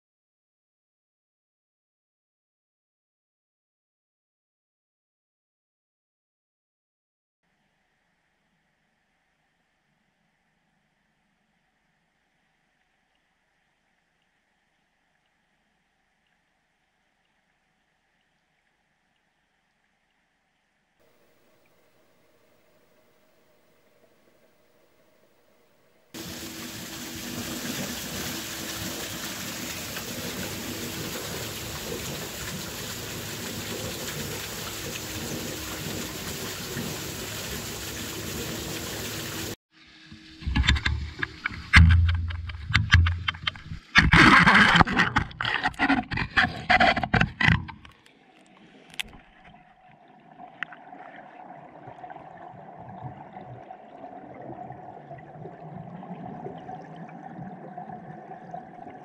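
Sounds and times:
water rushing: 0:21.1 - 0:59.0
muffled underwater current: 0:40.2 - 0:59.0
camera knocking and splashing: 0:40.4 - 0:48.0.

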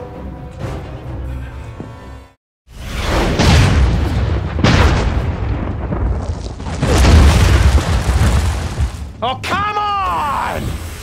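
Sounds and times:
heavy explosive blasts: 0:02.8 - 0:09.2.

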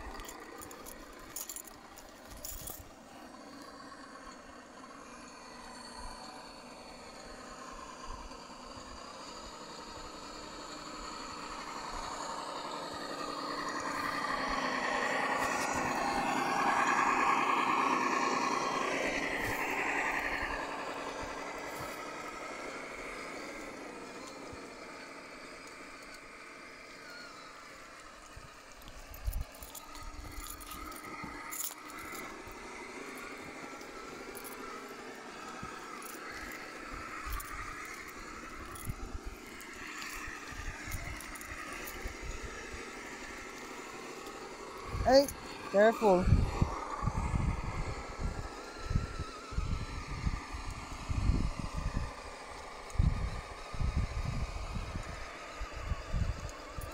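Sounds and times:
sharp clicks and crunches: 0:00.0 - 0:04.4, 0:27.9 - 0:45.7
toy car electric motor whining: 0:00.0 - 0:56.9.

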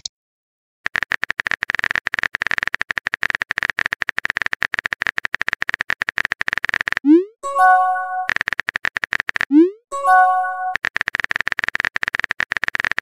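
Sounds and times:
keyboard typing clicks: 0:00.9 - 0:13.0
rising bloop: 0:07.0 - 0:08.3, 0:09.5 - 0:10.8
chiming notification tone: 0:07.1 - 0:08.3, 0:09.9 - 0:10.8.

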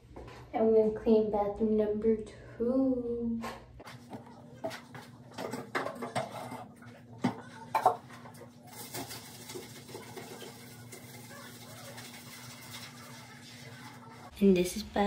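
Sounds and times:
cloth scrubbing countertop: 0:03.8 - 0:14.4
items clattering on counter: 0:03.9 - 0:11.2.

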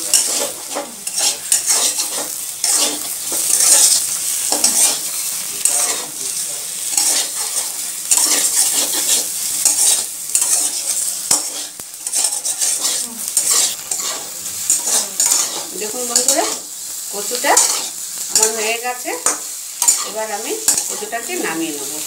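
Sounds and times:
metal spatula scraping wok: 0:00.0 - 0:22.0.

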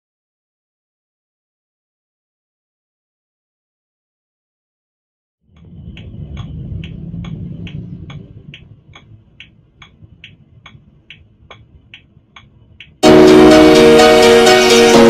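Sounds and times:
low rumble: 0:05.5 - 0:13.5
car indicator ticking: 0:06.0 - 0:13.0
loud music: 0:13.0 - 0:15.0.

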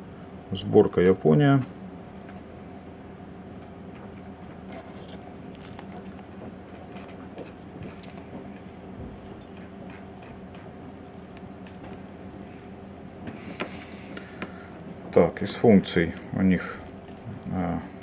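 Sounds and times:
electrical hum: 0:00.0 - 0:18.0.

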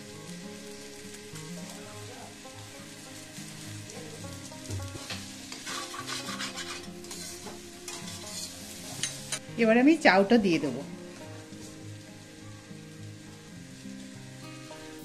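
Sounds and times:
soft background music: 0:00.0 - 0:15.0
vegetables sizzling in a pan: 0:00.0 - 0:15.0
metal spatula scraping a pan: 0:05.0 - 0:09.4.

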